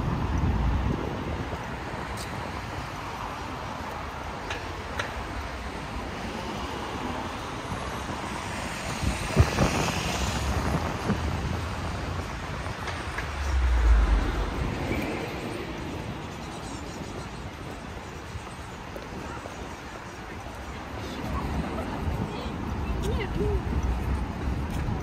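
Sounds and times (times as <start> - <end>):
traffic noise: 0.0 - 25.0
loud rush of passing vehicle: 5.8 - 17.0.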